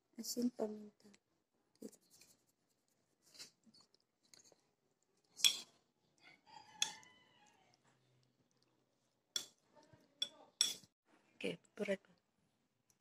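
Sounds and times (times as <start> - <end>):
fork scraping ceramic plate: 6.8 - 7.1.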